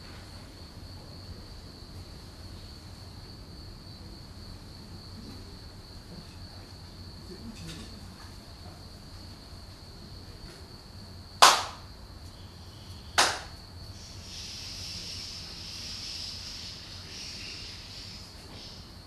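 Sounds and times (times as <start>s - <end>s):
sharp hand claps: 11.4s - 11.9s, 13.2s - 13.6s.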